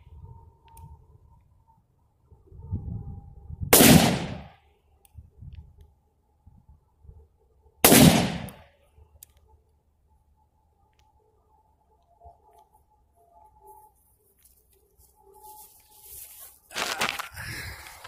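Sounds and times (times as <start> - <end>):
rifle shots: 3.7 - 4.5, 7.8 - 8.6.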